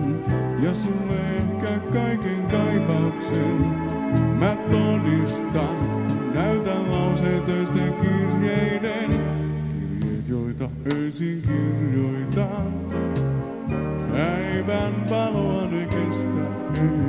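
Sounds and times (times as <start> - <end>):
dance band playing live: 0.0 - 10.3
drums: 0.0 - 17.0
electric bass: 0.0 - 17.0
keyboards: 0.0 - 17.0.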